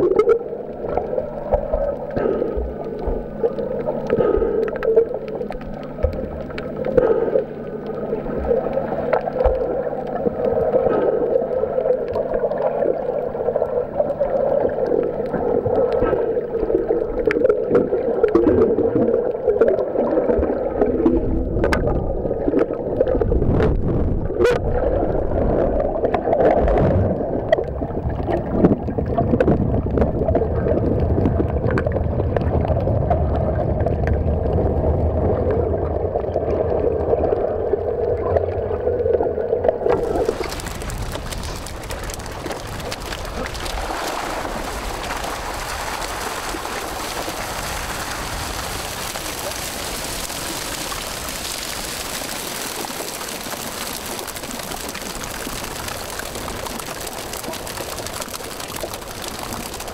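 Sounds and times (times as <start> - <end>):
steady low hum: 0.0 - 18.9
low rumbling of water: 0.0 - 59.9
underwater moving water and bubbles: 0.0 - 59.9.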